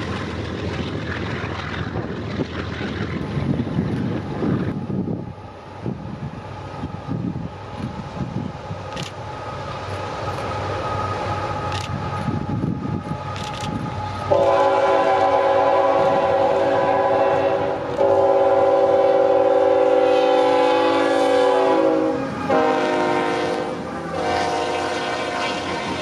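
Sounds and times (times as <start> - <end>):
locomotive air horn chord: 14.3 - 26.0.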